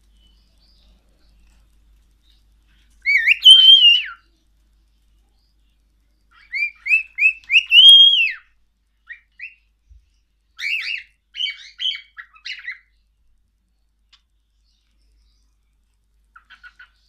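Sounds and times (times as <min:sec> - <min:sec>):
cockatiel whistling and chirping: 0:03.0 - 0:04.2, 0:06.3 - 0:09.6, 0:10.6 - 0:12.9, 0:16.4 - 0:17.0.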